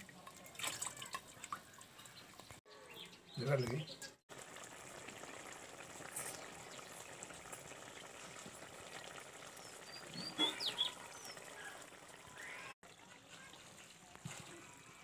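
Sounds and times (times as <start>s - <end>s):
curry bubbling simmer: 4.3s - 15.0s
bird chirping: 9.5s - 12.7s.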